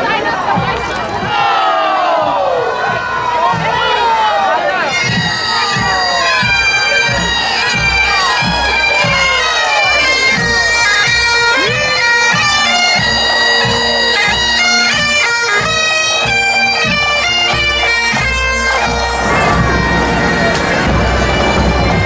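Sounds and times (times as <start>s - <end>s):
drums beating time: 2.2s - 22.0s
bagpipes playing over drone: 4.9s - 22.0s.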